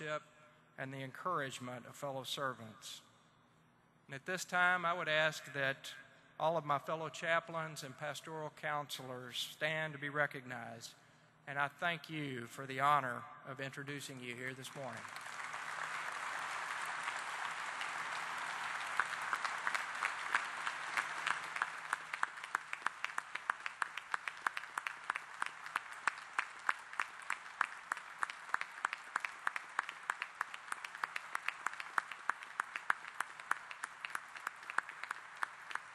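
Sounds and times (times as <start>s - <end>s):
audience applauding: 14.9s - 35.9s.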